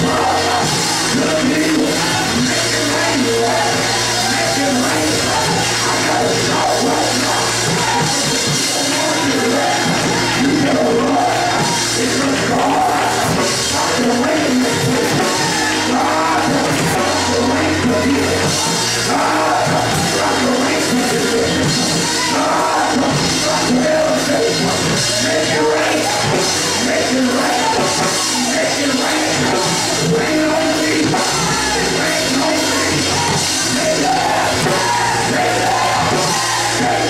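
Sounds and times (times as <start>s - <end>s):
drums: 0.0s - 37.0s
gospel church band: 0.0s - 37.0s
voices singing along: 0.0s - 37.0s.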